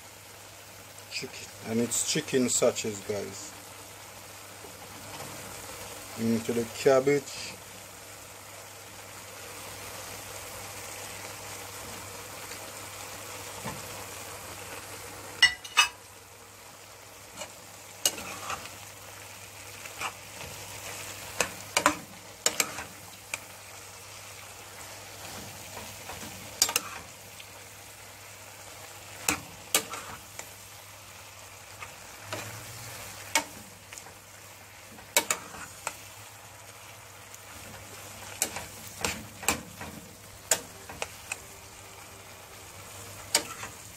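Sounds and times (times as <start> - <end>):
food sizzling in frying pan: 0.0 - 43.9
metal spoon scraping pan: 17.4 - 18.8, 21.3 - 23.0, 26.1 - 27.1, 43.3 - 43.8.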